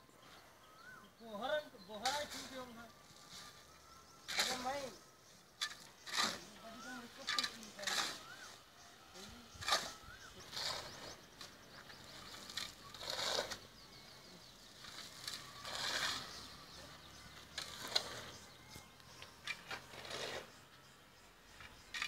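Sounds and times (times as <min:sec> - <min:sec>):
shovels scraping gravel: 0:02.0 - 0:05.0, 0:05.6 - 0:08.6, 0:09.2 - 0:20.7.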